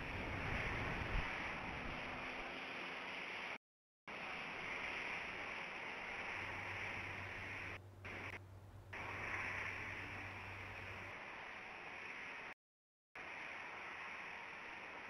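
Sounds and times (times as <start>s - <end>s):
rain hiss on microphone: 0.0s - 12.6s, 13.2s - 15.0s
low hum: 6.2s - 11.1s.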